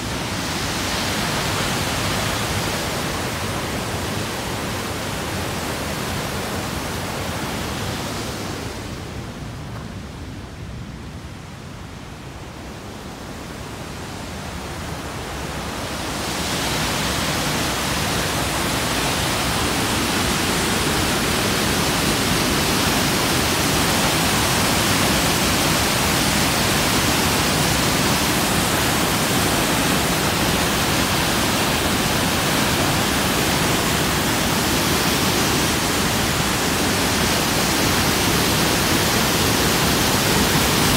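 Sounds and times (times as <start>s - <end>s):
waterfall rushing: 0.0s - 10.0s, 12.4s - 40.9s.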